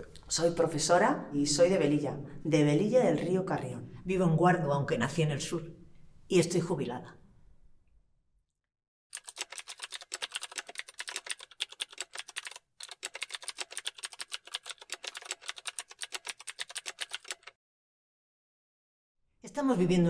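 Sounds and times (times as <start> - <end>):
keystroke clicks: 9.2 - 17.5.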